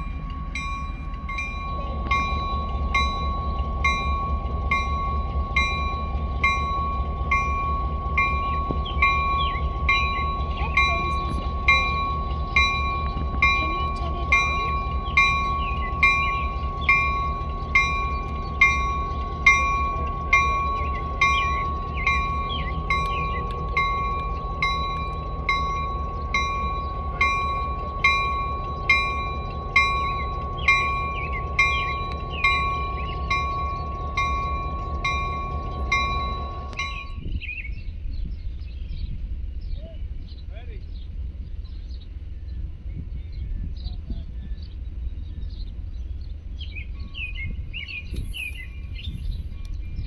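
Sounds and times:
locomotive bell ringing: 0.0s - 38.0s
diesel engine rumble: 0.0s - 50.0s.

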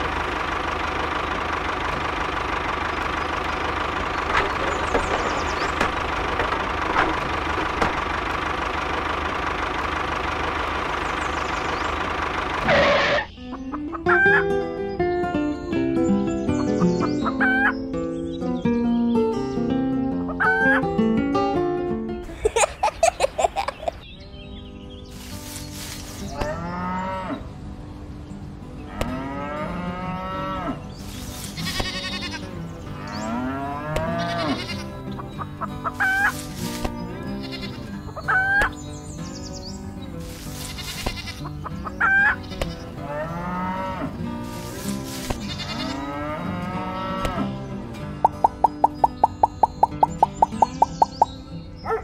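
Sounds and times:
cattle mooing: 26.3s - 27.5s, 28.9s - 30.9s, 31.6s - 35.0s, 42.3s - 47.6s
sharp higher animal calls: 34.1s - 38.8s, 48.2s - 51.3s.

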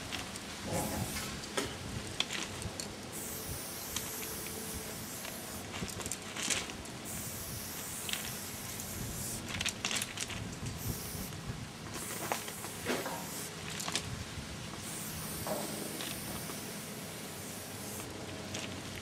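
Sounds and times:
spray paint can hissing: 0.8s - 1.4s, 3.1s - 14.0s, 14.8s - 18.1s.

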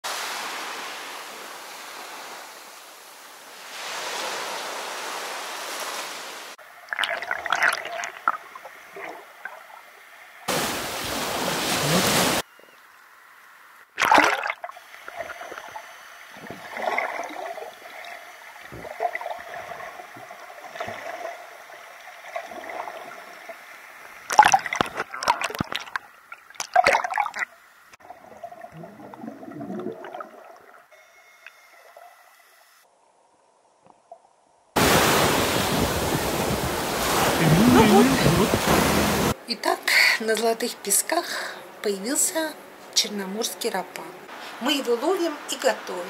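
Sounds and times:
loud rush of water: 0.0s - 6.6s, 10.5s - 12.4s, 34.8s - 39.4s
small waves washing onto beach: 0.0s - 6.6s, 10.4s - 12.4s, 34.8s - 39.4s
water splashing and gurgling: 3.7s - 12.5s, 14.0s - 30.9s, 34.8s - 39.4s
sharp splash: 14.0s - 14.7s, 24.3s - 27.5s.

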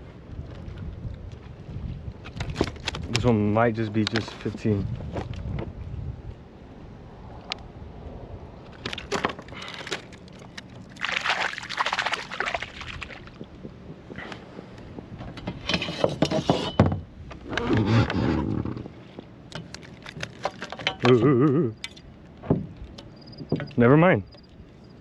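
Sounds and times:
water splashing around kayak: 9.0s - 13.5s.

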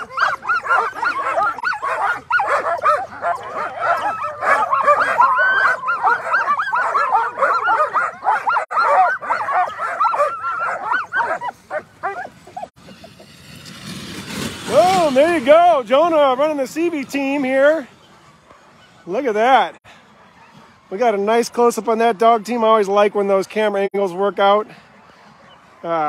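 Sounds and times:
dogs whining: 0.0s - 12.8s
dogs barking and yipping: 0.0s - 22.6s.

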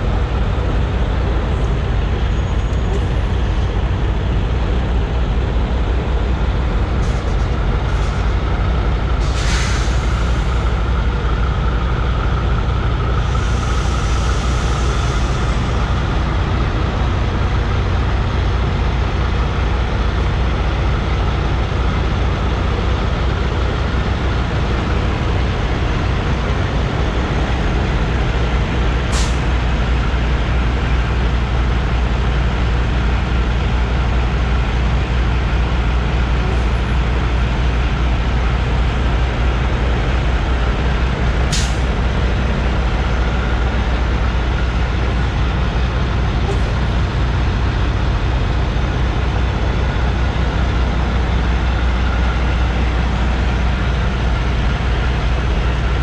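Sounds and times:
diesel engine rumble: 0.0s - 56.0s
air hiss: 9.2s - 10.7s, 13.2s - 15.8s.

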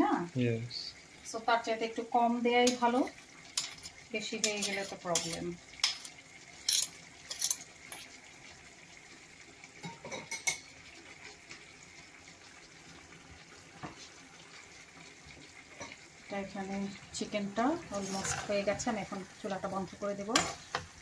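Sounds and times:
rice frying in oil: 0.0s - 21.0s
metal spoon clinking in a pot: 3.6s - 8.1s, 9.8s - 10.7s, 20.4s - 20.8s.

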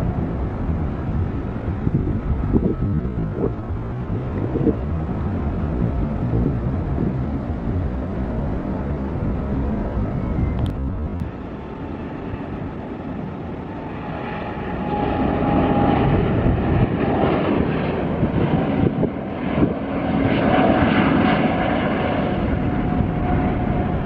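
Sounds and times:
jet airliner engines roaring: 0.0s - 24.0s.

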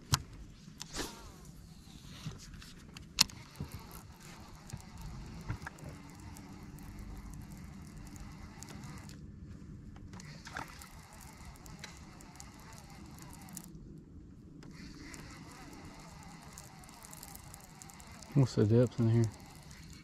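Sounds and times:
faint whir: 0.0s - 20.0s
fishing tackle clicking: 3.1s - 9.2s, 10.2s - 13.8s, 14.6s - 20.0s.

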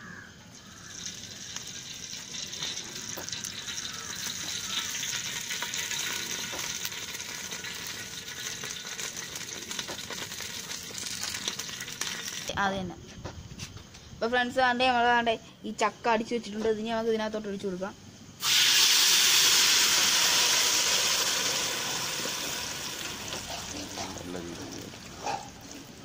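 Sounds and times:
oil sizzling and popping: 0.5s - 12.6s, 18.4s - 26.0s.

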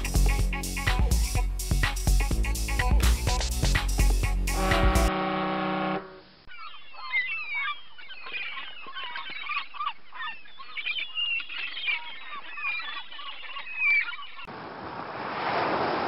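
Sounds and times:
flock of birds chattering: 6.5s - 14.5s.

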